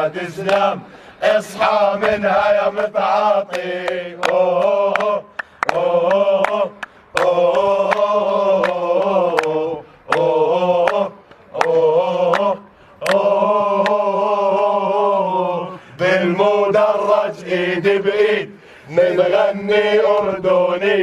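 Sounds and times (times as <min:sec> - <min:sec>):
men chanting: 0:00.0 - 0:21.0
hand claps: 0:00.4 - 0:00.7, 0:02.0 - 0:02.4, 0:03.4 - 0:14.0.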